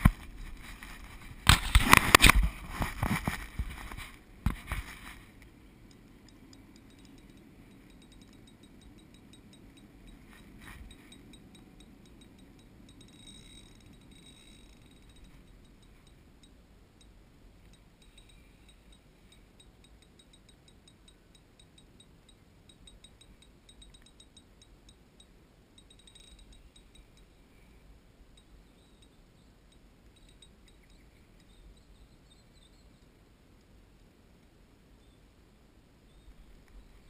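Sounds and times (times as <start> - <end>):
fishing reel ticking: 5.9 - 27.3, 28.4 - 31.9.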